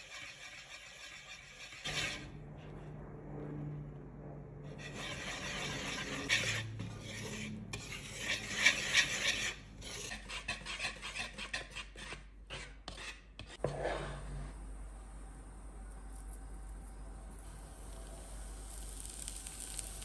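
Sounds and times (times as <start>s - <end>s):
whisk beating batter in a bowl: 0.0s - 2.2s, 4.8s - 13.6s.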